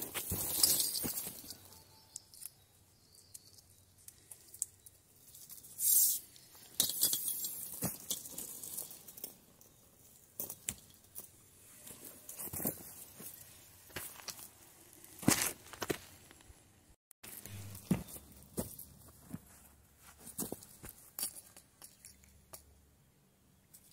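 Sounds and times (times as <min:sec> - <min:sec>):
dry leaves rustling: 0:00.0 - 0:02.0.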